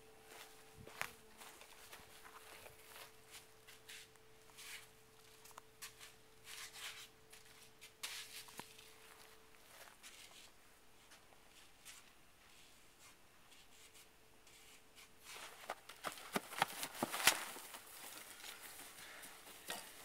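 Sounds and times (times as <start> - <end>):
footsteps on grass: 0.2 - 6.0, 8.3 - 10.5.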